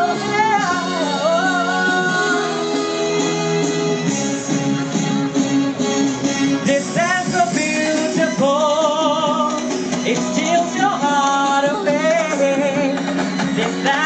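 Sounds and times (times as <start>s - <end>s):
man singing with vibrato: 0.0s - 3.5s, 6.6s - 14.0s
instrumental accompaniment: 0.0s - 14.0s.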